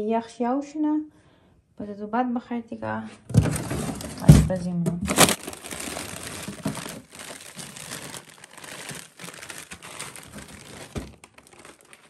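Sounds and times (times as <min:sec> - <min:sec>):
plastic packages crinkling: 0:05.1 - 0:12.0.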